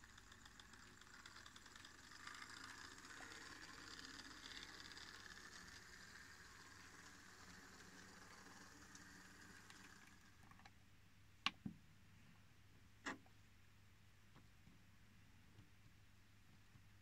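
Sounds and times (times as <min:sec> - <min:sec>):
model train whirring on track: 0:00.0 - 0:10.6.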